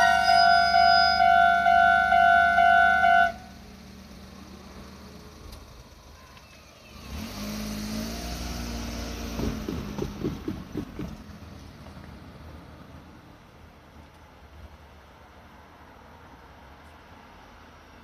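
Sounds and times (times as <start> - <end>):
electronic level-crossing bell ringing: 0.0 - 3.4
vehicle rumbling past: 0.0 - 13.9
clunks: 9.2 - 12.2.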